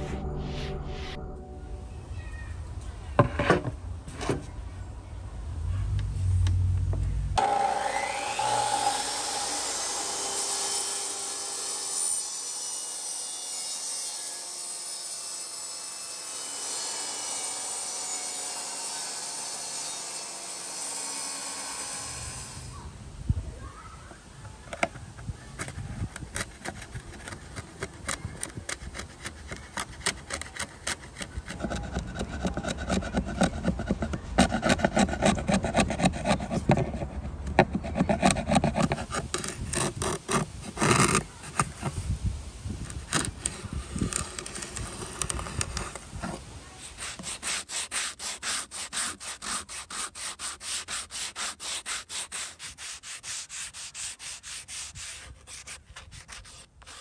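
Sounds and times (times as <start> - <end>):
sanding block rubbing wood: 0.0 - 1.2, 26.1 - 42.0, 42.9 - 57.0
wood chisel scraping shavings: 0.0 - 1.2, 25.6 - 42.0, 42.8 - 57.0.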